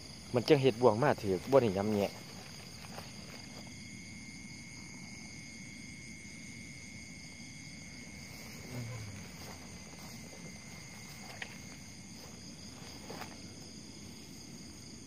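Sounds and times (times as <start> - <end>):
crickets calling: 0.0 - 15.0
rustle through grass: 1.2 - 3.8, 8.1 - 14.8.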